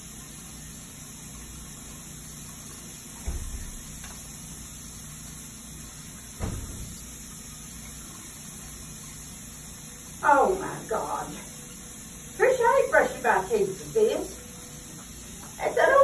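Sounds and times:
exhaust fan humming: 0.0 - 16.0
dull thumps: 6.4 - 7.2.

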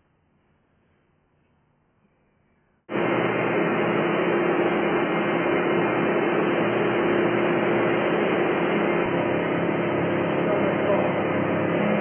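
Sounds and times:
industrial machinery drone: 2.9 - 12.0.

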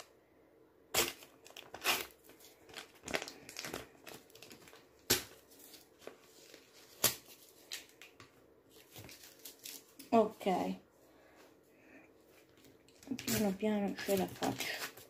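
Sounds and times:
plastic stickers crinkling and crackling: 1.2 - 10.2, 12.4 - 15.0.

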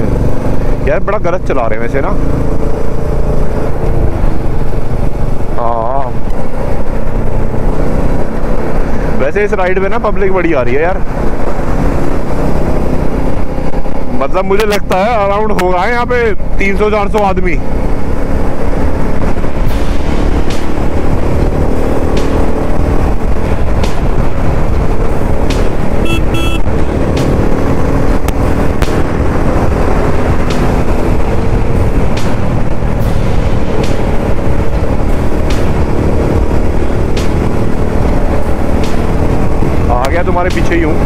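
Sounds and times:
motorcycle engine cruising: 0.0 - 41.0
wind rush on microphone: 17.5 - 41.0
short beeps: 26.0 - 26.7.

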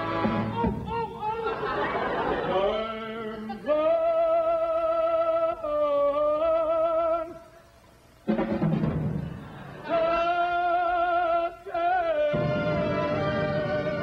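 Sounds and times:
big band playing: 0.0 - 1.2, 8.3 - 10.4, 12.1 - 14.0
man singing with vibrato: 0.0 - 7.8, 9.7 - 14.0
loud drum hit: 8.3 - 9.4.

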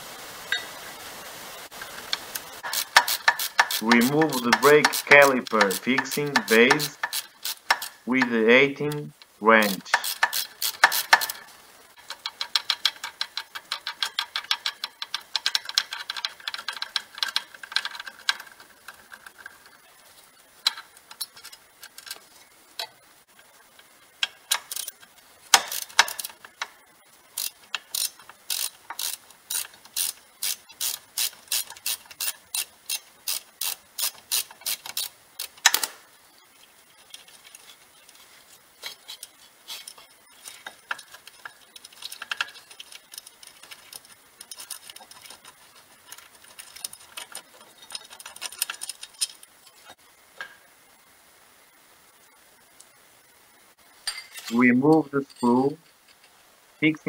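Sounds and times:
ratchet wrench clicking: 2.6 - 8.0, 9.6 - 11.4, 12.0 - 18.6, 24.2 - 26.7, 27.3 - 35.9, 38.8 - 49.4.

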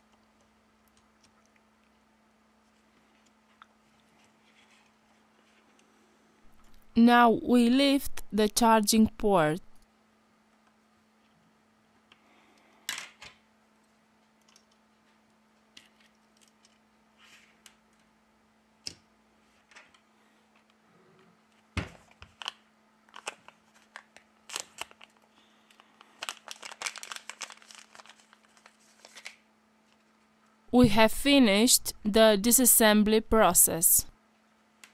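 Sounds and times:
faint steady hum: 0.0 - 34.9.

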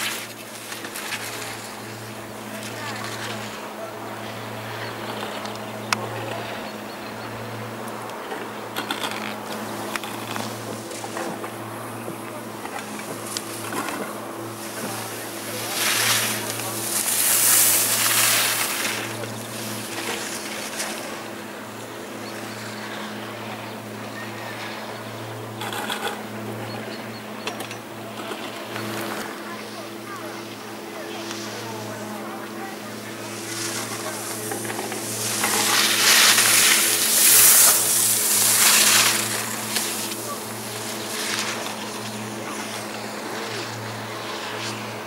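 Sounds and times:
skis scraping on snow: 0.0 - 6.6, 8.3 - 25.1, 28.0 - 45.0
low hum: 28.6 - 44.8.

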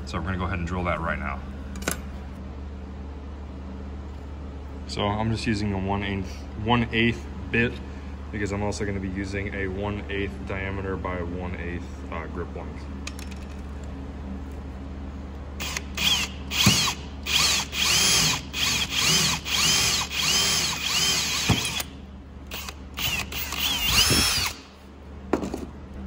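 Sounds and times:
hand drill drilling metal: 15.6 - 21.9, 22.5 - 24.7.

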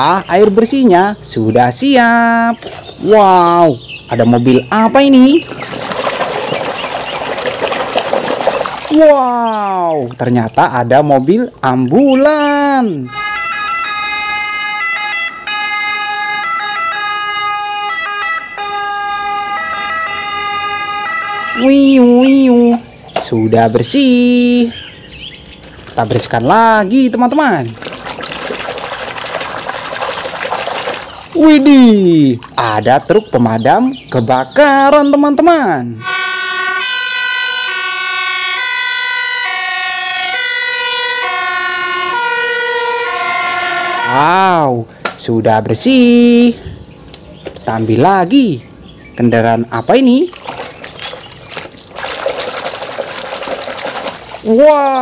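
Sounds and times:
ambulance two-tone siren: 12.6 - 22.9, 35.9 - 44.8.

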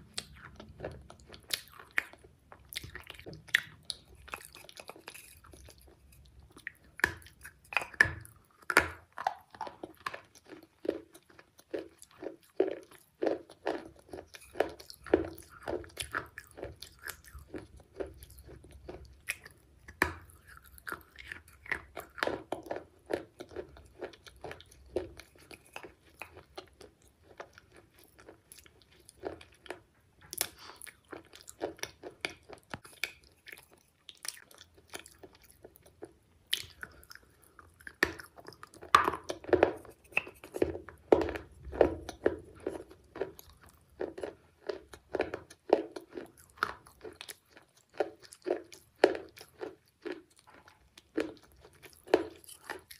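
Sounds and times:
chocolate chewing and crunching: 0.0 - 52.9.

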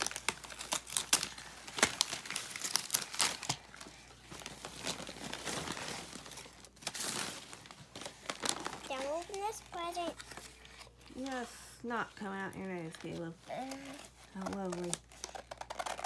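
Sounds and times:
packaging crinkling and rustling: 0.0 - 16.0.

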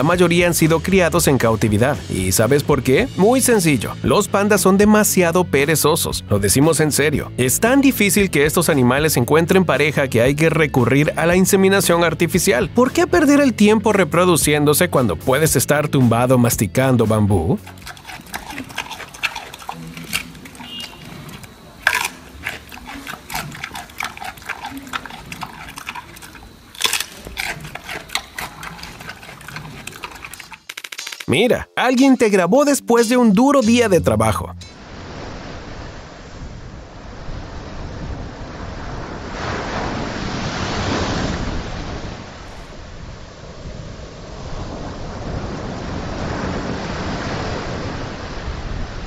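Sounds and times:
panda chewing bamboo: 17.6 - 30.8
surf washing onto beach: 34.8 - 49.0
wind rumbling on microphone: 34.8 - 49.0.

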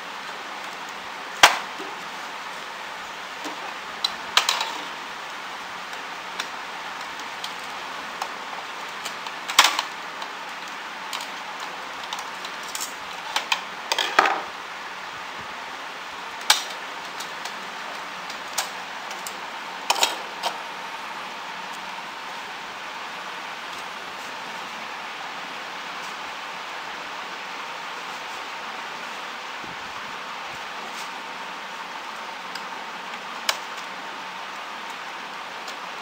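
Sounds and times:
steady background hiss: 0.0 - 36.0
plastic parts clattering: 3.4 - 5.0, 8.2 - 10.3, 11.1 - 14.5
plastic parts clicking: 8.2 - 14.5.

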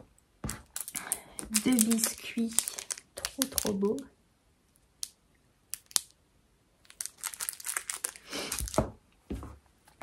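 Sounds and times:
packaging crinkling: 0.4 - 4.0, 6.8 - 8.8.

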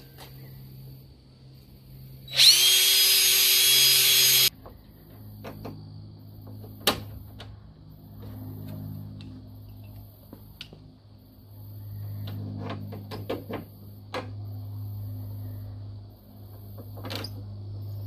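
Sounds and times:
cordless drill drilling into metal: 2.3 - 4.5.

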